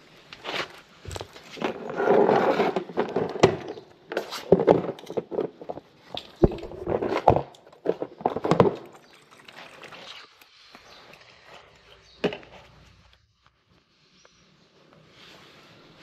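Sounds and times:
objects knocking and clicking: 0:02.7 - 0:09.5.

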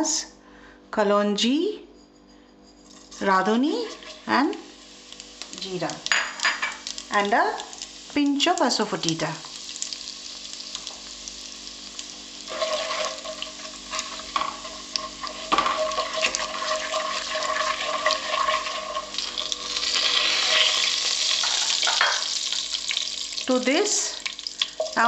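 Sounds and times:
spatula scraping a pan: 0:02.3 - 0:04.4, 0:12.4 - 0:22.1
spices sizzling in hot oil: 0:02.8 - 0:25.0.

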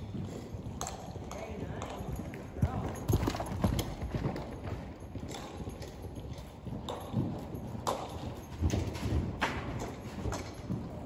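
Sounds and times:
horse hoofbeats on dirt: 0:00.0 - 0:11.0.

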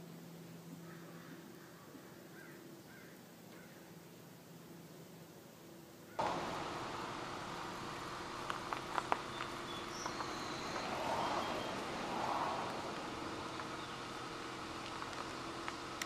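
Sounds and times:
outdoor background noise: 0:00.0 - 0:16.0
faint clicks: 0:06.2 - 0:14.1, 0:14.8 - 0:16.0.

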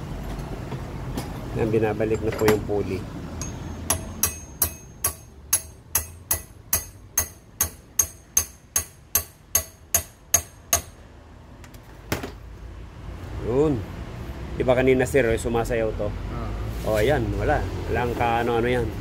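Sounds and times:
hammer tapping steel rod: 0:03.4 - 0:11.0.

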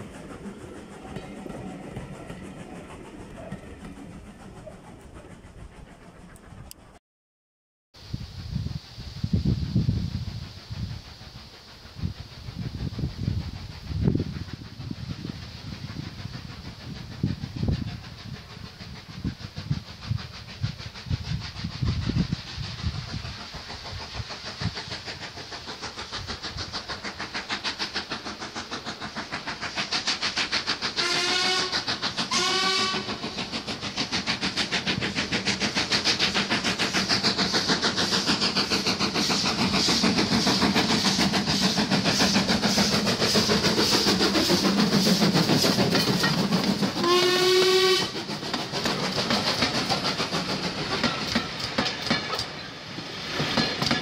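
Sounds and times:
steam locomotive exhaust beats: 0:00.0 - 0:07.0, 0:08.0 - 0:54.0
steam locomotive whistle blasts: 0:31.0 - 0:33.2, 0:47.0 - 0:48.2.

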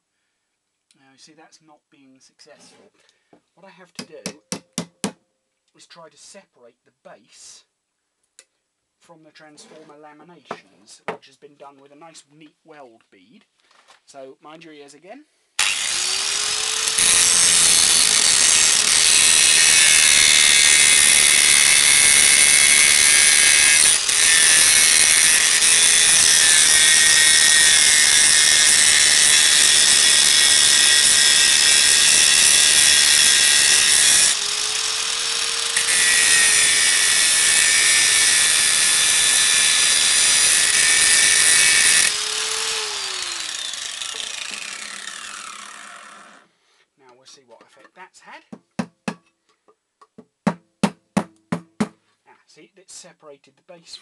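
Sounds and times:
angle grinder grinding metal: 0:15.6 - 0:46.5.

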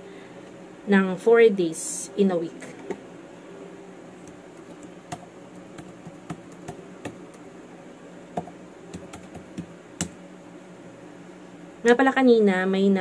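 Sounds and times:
keyboard typing: 0:04.3 - 0:07.4, 0:08.4 - 0:10.1.

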